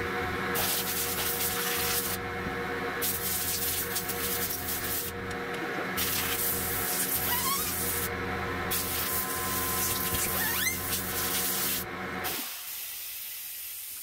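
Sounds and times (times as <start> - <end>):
steady hum: 0.0 - 12.5
compressed air hissing bursts: 10.9 - 14.0.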